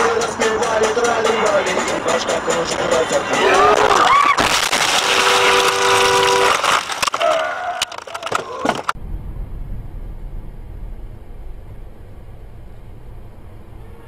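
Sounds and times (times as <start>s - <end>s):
car crash: 3.7s - 13.3s
car horn: 4.8s - 7.4s, 13.7s - 14.0s
car road rumble: 7.9s - 14.0s.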